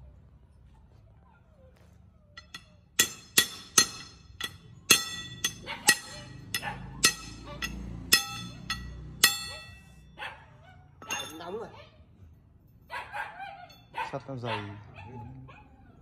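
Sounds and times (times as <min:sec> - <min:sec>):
hammer striking steel bar: 0:02.4 - 0:10.0.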